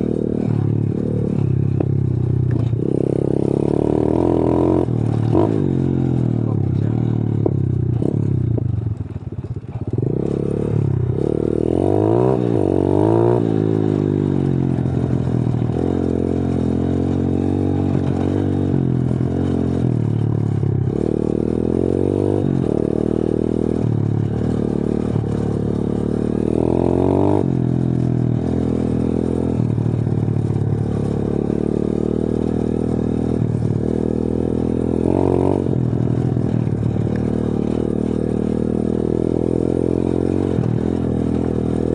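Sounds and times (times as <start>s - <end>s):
bike rattling on dirt track: 0.0s - 41.9s
motorbike engine revving: 0.0s - 41.9s.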